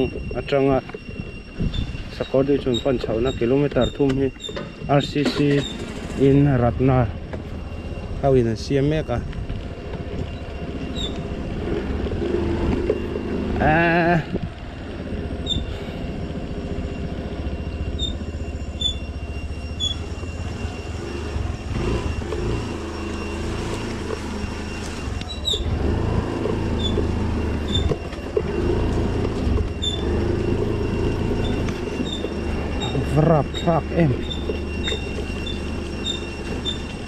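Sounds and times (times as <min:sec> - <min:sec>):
short high squeaks: 0:00.0 - 0:06.7, 0:10.2 - 0:13.0, 0:15.4 - 0:15.9, 0:17.7 - 0:20.9, 0:21.5 - 0:37.0
road rumble: 0:00.0 - 0:37.0
motorcycle engine at low revs: 0:02.8 - 0:08.2, 0:09.0 - 0:37.0.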